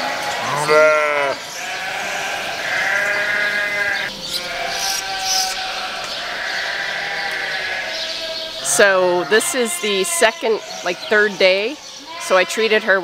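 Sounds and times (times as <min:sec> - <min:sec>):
sheep bleating: 0:00.0 - 0:13.0.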